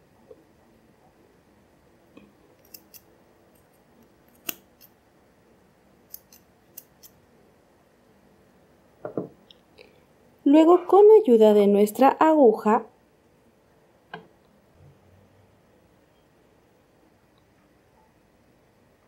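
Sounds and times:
scissors snipping yarn: 0:02.6 - 0:03.7, 0:04.3 - 0:04.9, 0:06.1 - 0:07.2
dull knock: 0:09.0 - 0:09.4.

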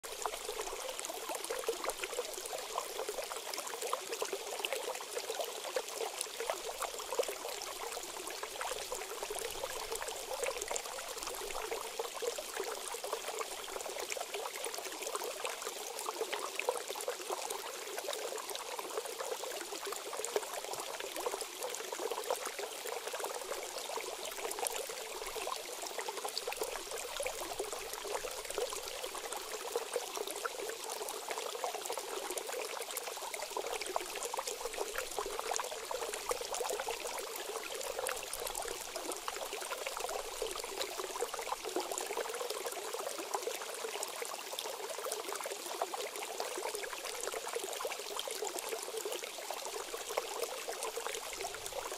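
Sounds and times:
creek water trickling: 0:00.0 - 0:51.9.

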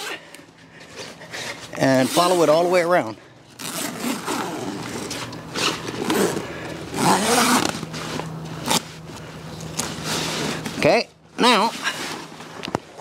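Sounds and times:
zipper unzipping: 0:03.6 - 0:07.9.

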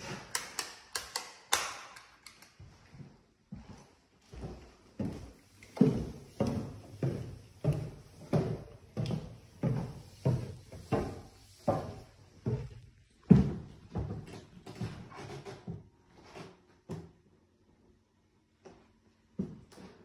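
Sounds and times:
footsteps on wooden stairs: 0:02.9 - 0:15.8.

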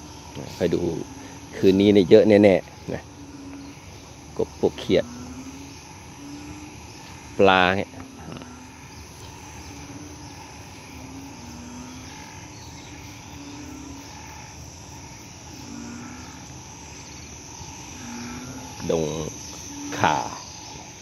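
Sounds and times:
background frogs: 0:00.0 - 0:21.0
bullfrogs calling: 0:00.0 - 0:21.0
insects: 0:00.0 - 0:21.0.

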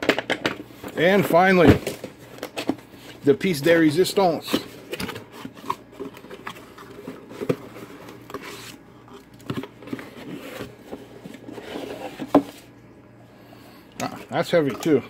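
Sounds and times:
cardboard flaps rustling and scraping: 0:04.2 - 0:08.8, 0:09.5 - 0:12.8.

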